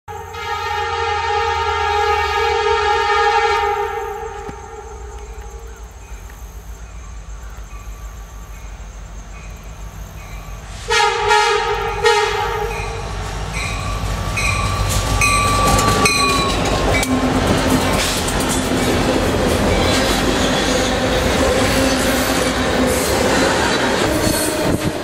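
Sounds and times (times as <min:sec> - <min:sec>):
train horn blasts: 0:00.1 - 0:05.7, 0:10.8 - 0:18.1
train wheel clatter: 0:13.6 - 0:25.0.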